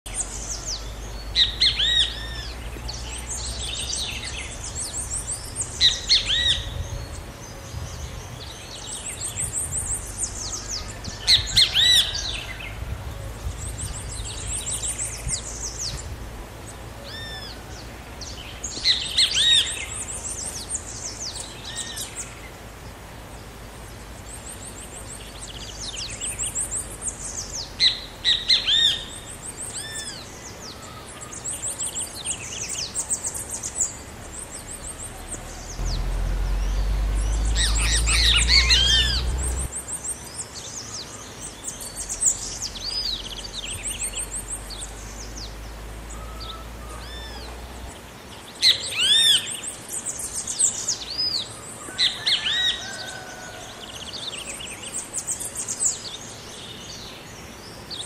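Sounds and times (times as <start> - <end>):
low rumble: 35.7 - 39.8
bird calling harsh notes: 35.8 - 39.7.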